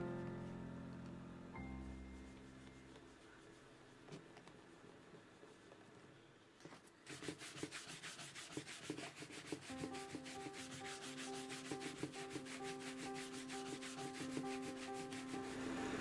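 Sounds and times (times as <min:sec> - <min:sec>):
soft background music: 0:00.0 - 0:03.9, 0:09.4 - 0:16.0
shoe brush buffing leather: 0:07.0 - 0:16.0.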